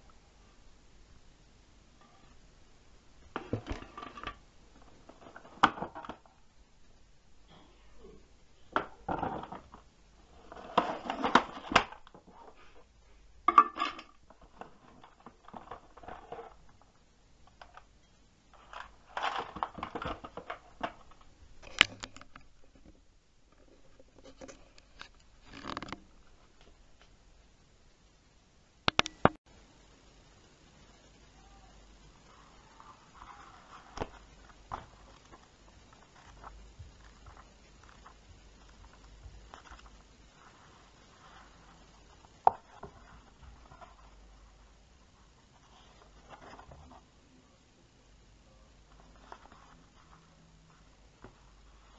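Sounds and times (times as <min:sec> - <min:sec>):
hard plastic parts clattering: 0:03.3 - 0:06.3.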